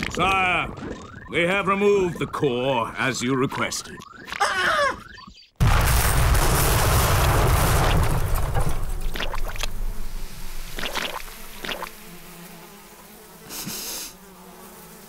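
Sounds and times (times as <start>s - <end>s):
cartoon explosion blast: 5.6s - 11.2s
splats of falling manure: 5.6s - 12.7s.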